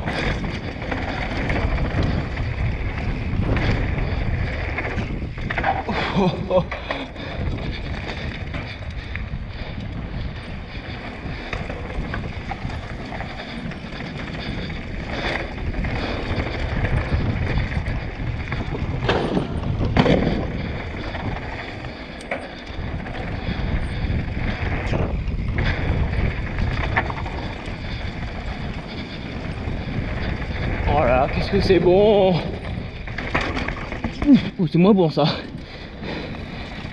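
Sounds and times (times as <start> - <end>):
bike tyre noise: 0.0 - 36.9
tyres rolling over wooden boardwalk: 0.0 - 36.9
wind buffeting microphone: 0.0 - 36.9
bike knocking over roots: 15.2 - 21.9, 32.6 - 34.4.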